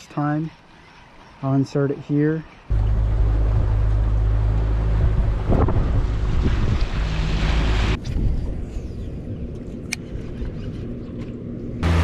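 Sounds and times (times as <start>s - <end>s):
outboard motor running: 2.7s - 8.0s
rush of wind and water: 2.8s - 8.7s.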